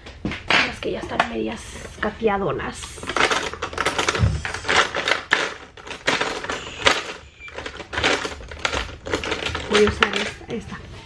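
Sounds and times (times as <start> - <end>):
brushes clattering: 0.5 - 10.4.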